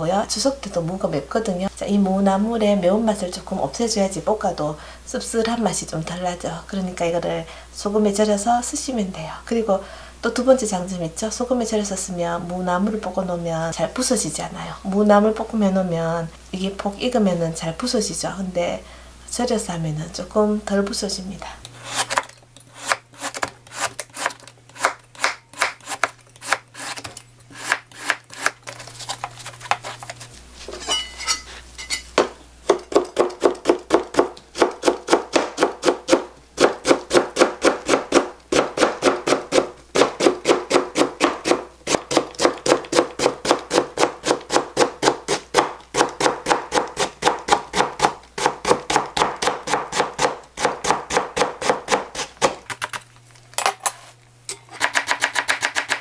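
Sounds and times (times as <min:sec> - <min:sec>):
knife chopping on cutting board: 0:22.8 - 0:28.6, 0:32.2 - 0:52.6, 0:54.7 - 0:56.0.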